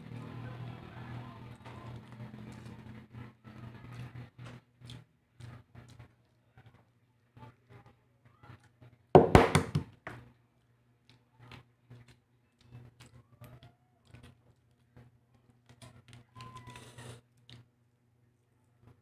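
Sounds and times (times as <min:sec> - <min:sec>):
egg shell cracking knocks: 0:09.2 - 0:10.0.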